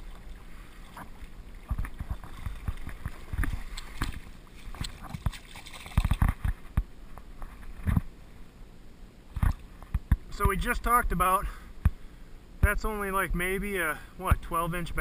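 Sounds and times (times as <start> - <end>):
stream water rushing and gurgling: 0.0 - 6.2
knocks and splashes of landing net: 0.9 - 6.6.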